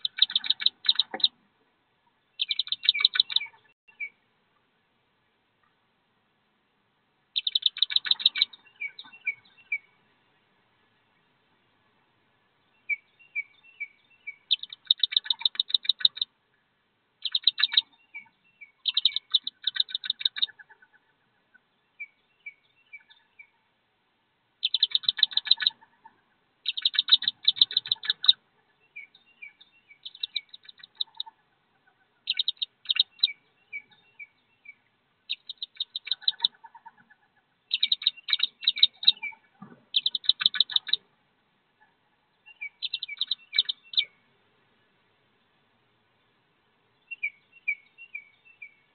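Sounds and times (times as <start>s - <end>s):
ducklings peeping: 0.0s - 1.4s, 2.4s - 4.2s, 7.3s - 10.0s, 12.8s - 16.3s, 17.2s - 23.5s, 24.6s - 41.1s, 41.7s - 44.2s.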